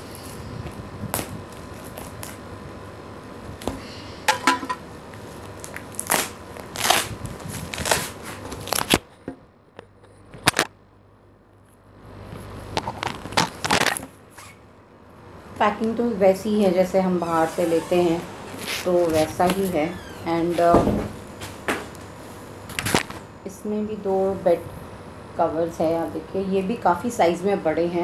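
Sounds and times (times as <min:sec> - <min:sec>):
plastic wrapping crackling: 0:05.1 - 0:09.0, 0:12.8 - 0:14.6
scissors cutting plastic: 0:05.6 - 0:09.0
sheets rustling: 0:17.1 - 0:20.7.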